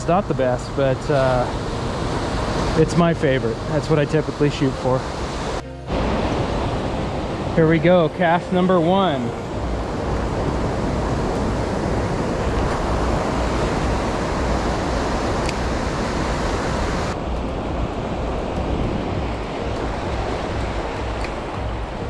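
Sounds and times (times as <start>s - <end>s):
wind rumbling on microphone: 0.0s - 22.0s
small waves washing on sand: 6.2s - 22.0s.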